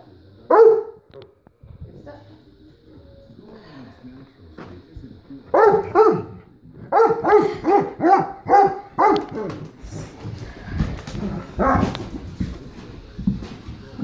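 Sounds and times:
large dog barking: 0.5 - 1.0, 5.5 - 9.5, 11.6 - 11.9.

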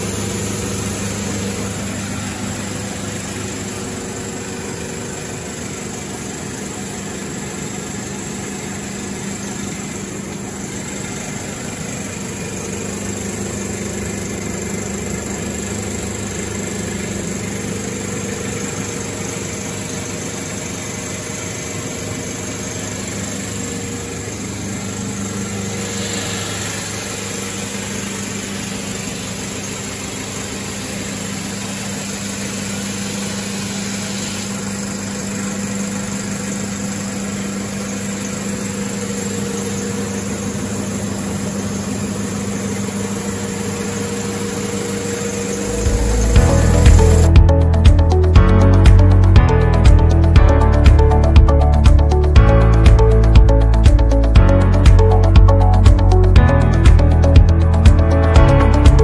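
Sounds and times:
belt sander motor humming: 0.0 - 35.3, 39.5 - 49.2.

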